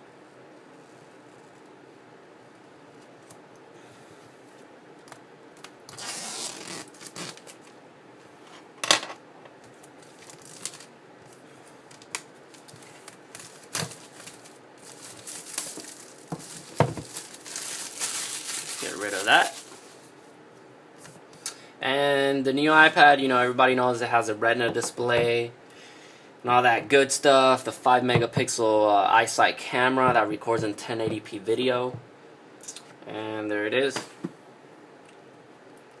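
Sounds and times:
plastic wrap crinkling and tearing: 0:05.6 - 0:07.7, 0:09.8 - 0:10.9, 0:11.9 - 0:20.1.

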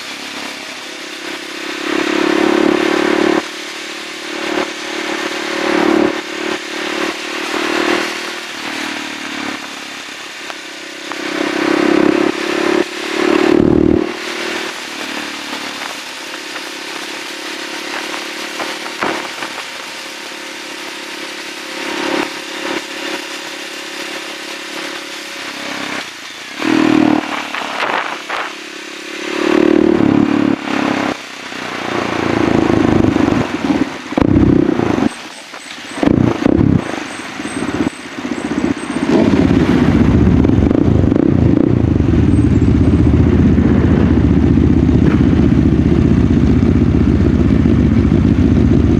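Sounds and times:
motorcycle engine revving: 0:00.0 - 0:48.9
wind on microphone: 0:36.0 - 0:37.0, 0:38.6 - 0:45.4.

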